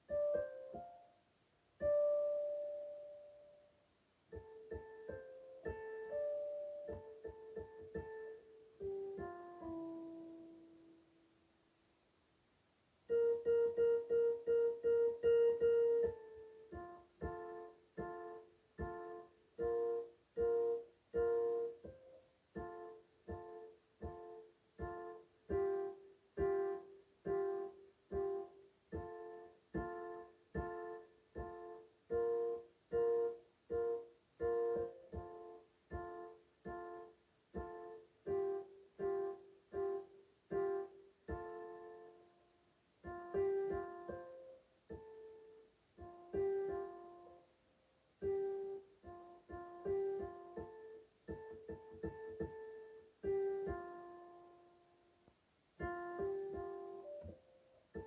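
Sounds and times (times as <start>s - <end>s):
electronic keyboard chords: 55.8s - 58.0s.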